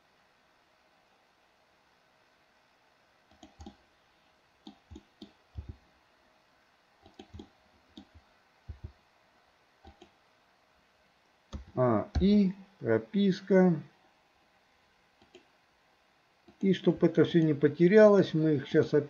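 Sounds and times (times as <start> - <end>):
mouse and keyboard clicks: 3.3 - 3.8, 4.6 - 5.8, 7.0 - 8.9, 9.8 - 10.2, 11.5 - 12.3, 15.2 - 15.5.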